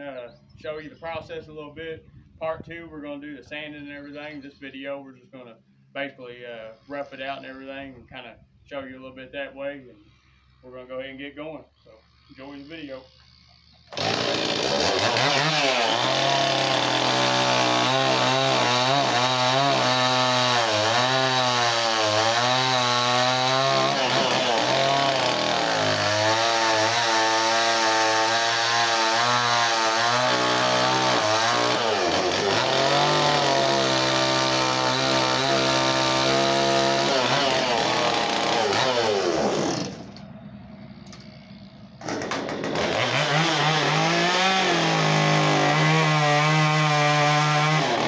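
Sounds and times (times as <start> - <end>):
chainsaw cutting wood: 12.1 - 48.0.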